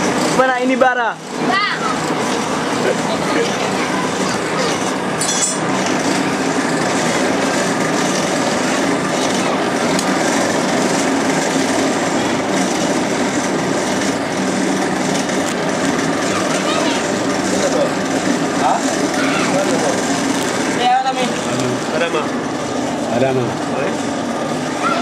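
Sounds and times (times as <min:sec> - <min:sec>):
hand-cranked blower whirring: 0:00.0 - 0:25.0
short metallic clink: 0:05.2 - 0:05.6.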